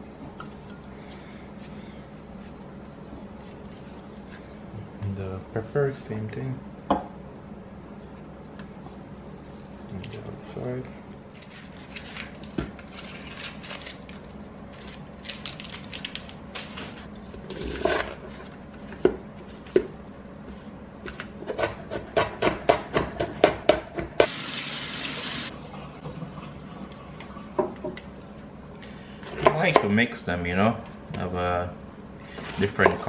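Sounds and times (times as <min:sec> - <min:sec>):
knife slicing onion on cutting board: 0:21.4 - 0:24.3.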